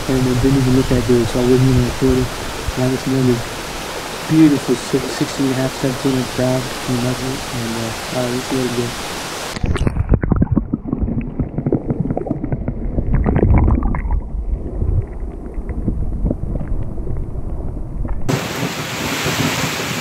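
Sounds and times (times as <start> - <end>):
heavy rain hiss: 0.0 - 9.7, 18.3 - 20.0
muffled underwater sloshing: 0.1 - 18.3.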